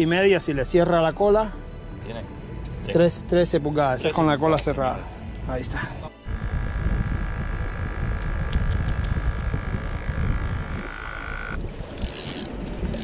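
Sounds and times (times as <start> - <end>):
wind buffeting microphone: 6.0 - 13.0
thin steady whine: 6.2 - 13.0.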